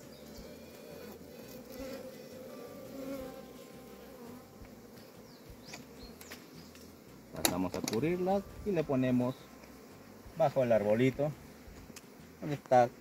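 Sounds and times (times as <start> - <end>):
queen bees piping: 0.0 - 13.0
worker bees buzzing: 0.0 - 13.0.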